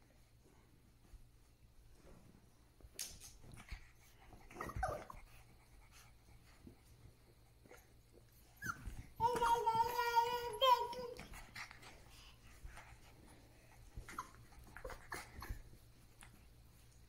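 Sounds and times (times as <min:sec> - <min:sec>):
puppy whimpering: 0:04.4 - 0:05.2, 0:08.6 - 0:08.9, 0:14.0 - 0:15.7.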